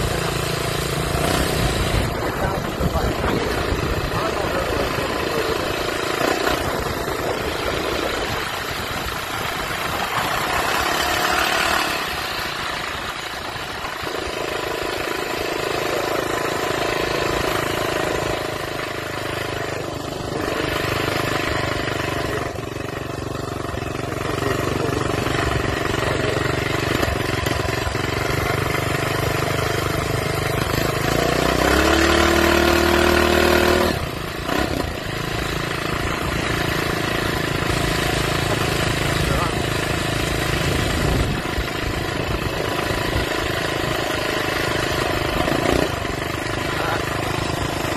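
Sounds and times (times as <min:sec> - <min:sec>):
minibike engine running: 0:00.0 - 0:47.9.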